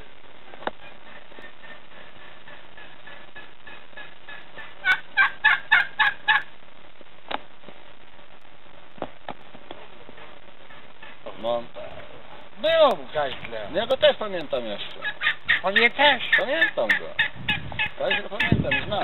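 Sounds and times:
turkey gobbling: 0.4 - 6.5, 10.1 - 12.4, 14.7 - 19.0.

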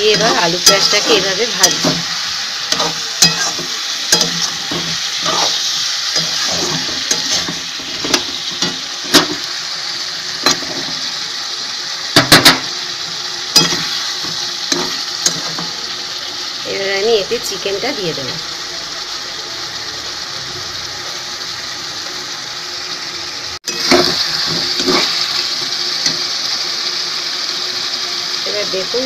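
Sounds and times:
spatula scraping and knocking pan: 0.0 - 9.5, 13.6 - 15.7, 23.7 - 26.3
potatoes sizzling in hot oil: 0.0 - 29.0.

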